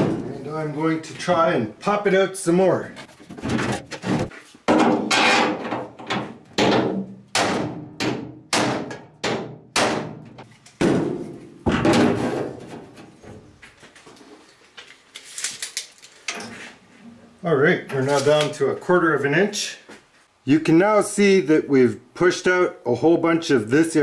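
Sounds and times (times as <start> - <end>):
hammer striking bolt on sheet metal: 4.8 - 10.5.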